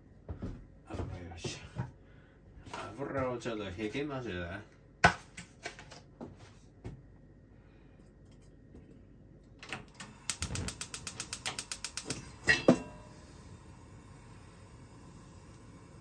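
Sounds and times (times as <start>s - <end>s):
gas flame hissing: 9.8s - 16.0s
stove igniter clicking rapidly: 9.9s - 12.8s
wok knocking on burner grate: 11.4s - 13.0s.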